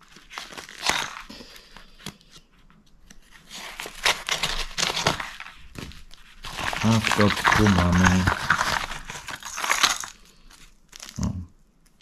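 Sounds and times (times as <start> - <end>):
envelope crinkling and rustling: 0.0 - 12.0
scissors snipping envelope: 0.1 - 2.5, 3.1 - 5.5, 6.4 - 10.2.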